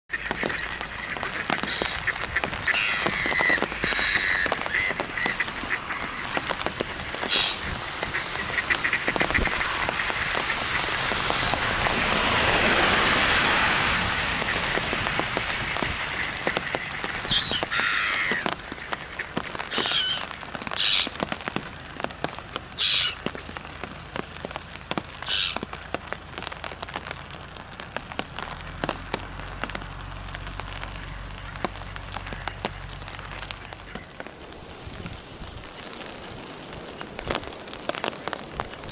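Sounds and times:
ducks quacking: 0.1s - 11.5s, 14.2s - 21.2s, 22.7s - 23.6s, 25.2s - 25.7s
steady crackling patter: 0.1s - 12.3s, 14.1s - 38.9s.

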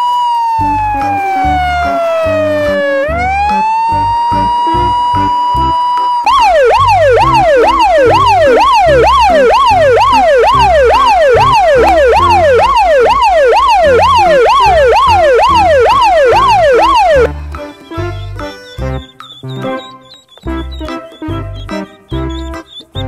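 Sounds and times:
electronic siren wail: 0.0s - 17.3s
music bass beat: 0.6s - 23.0s.

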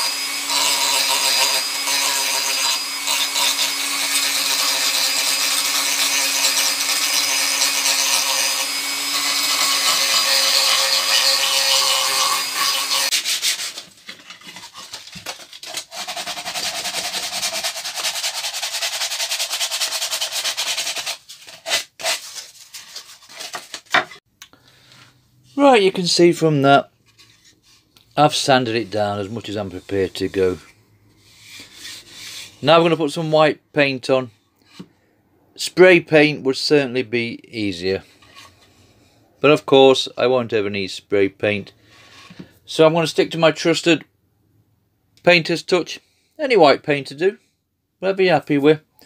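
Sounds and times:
hand sanding wood: 0.0s - 23.9s
rotary tool sanding wood: 0.0s - 24.0s.

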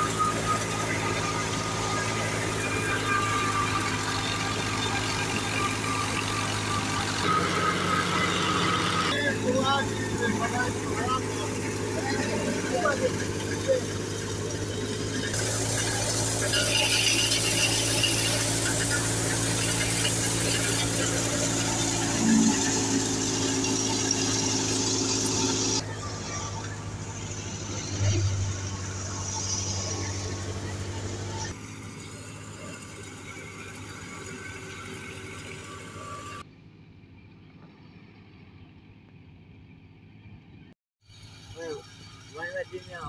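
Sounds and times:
grain pouring from chute: 0.0s - 27.7s
thresher rattling: 0.0s - 35.7s.

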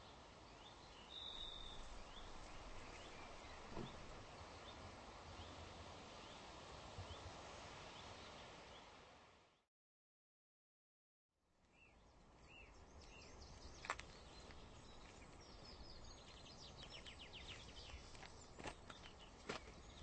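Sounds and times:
small birds chirping: 0.0s - 7.3s, 11.7s - 20.0s
soft footsteps: 13.6s - 15.6s, 16.2s - 20.0s.

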